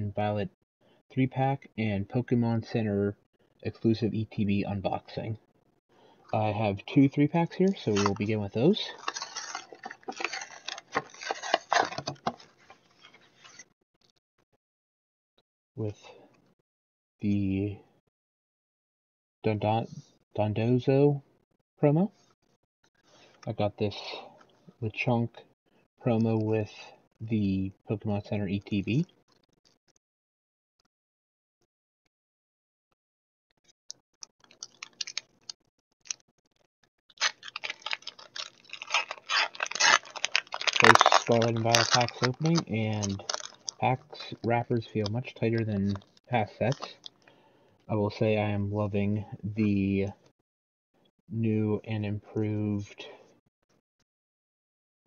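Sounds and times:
plastic packaging crinkling: 0:07.6 - 0:13.6, 0:34.3 - 0:47.3.

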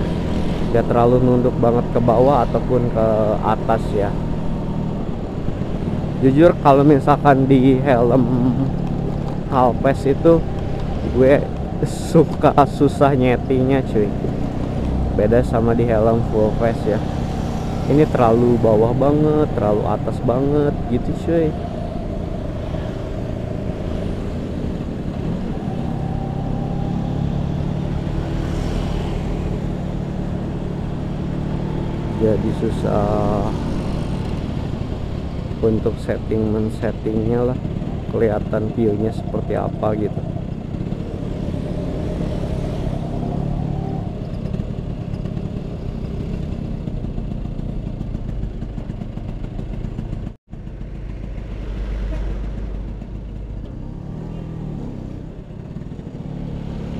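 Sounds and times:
scooter engine running: 0:44.2 - 0:56.9.

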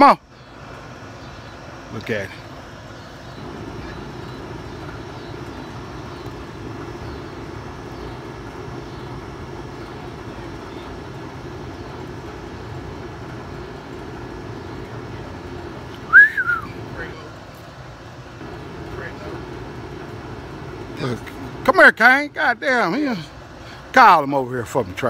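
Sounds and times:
air conditioner hum and fan: 0:00.0 - 0:25.0
high whistle: 0:16.1 - 0:16.8.

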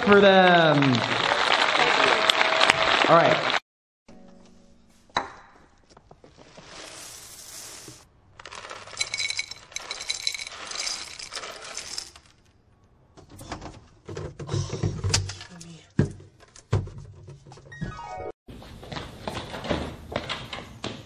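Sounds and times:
cereal pouring onto metal strainer: 0:06.4 - 0:12.4.

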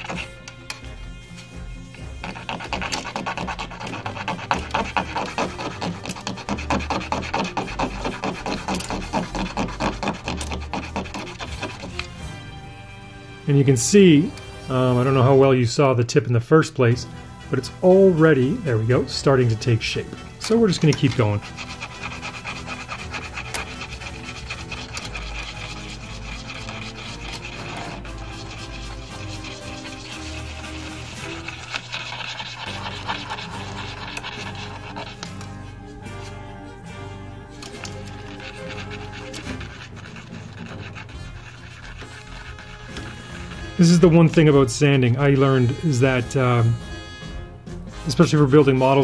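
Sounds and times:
plastic tube rubbed on sandpaper: 0:00.0 - 0:00.4, 0:02.1 - 0:12.3, 0:20.4 - 0:36.4, 0:37.6 - 0:44.4.

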